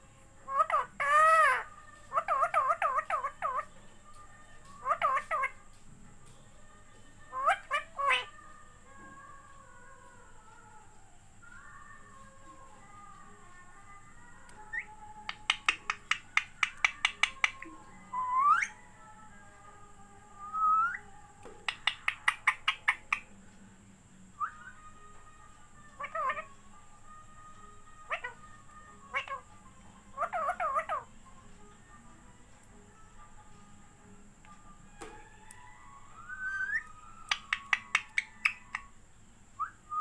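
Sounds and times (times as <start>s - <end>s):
parakeet clicking calls: 4.7s - 5.6s, 14.7s - 17.7s, 21.6s - 23.3s, 26.0s - 26.5s, 28.1s - 28.4s, 29.1s - 29.4s, 30.2s - 31.1s, 36.4s - 38.9s
parakeet whistling rising notes: 16.9s - 18.8s, 20.4s - 21.1s, 35.2s - 38.9s.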